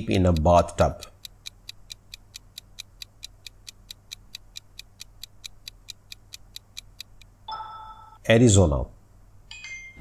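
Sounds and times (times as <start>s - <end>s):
clock-like timer ticking: 0.0s - 7.4s.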